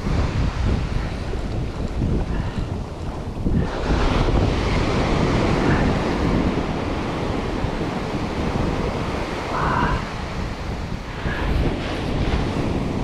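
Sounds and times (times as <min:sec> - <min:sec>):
ocean surf washing up beach: 0:00.0 - 0:13.0
wind buffeting microphone: 0:00.0 - 0:13.0.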